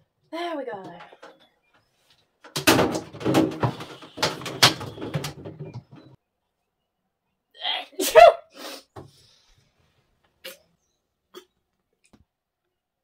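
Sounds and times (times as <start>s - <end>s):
cabinet rattling and knocking: 2.5s - 6.2s.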